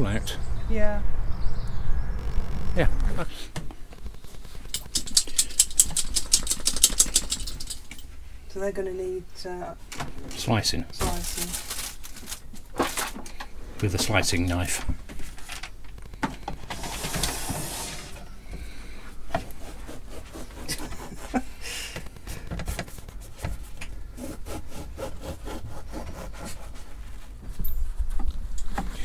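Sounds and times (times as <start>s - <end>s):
knife sawing through bread: 19.5s - 21.4s, 24.2s - 27.0s.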